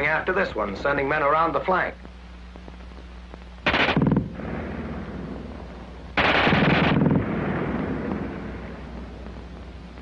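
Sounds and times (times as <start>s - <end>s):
machine gun burst: 3.6s - 4.5s, 6.2s - 7.6s.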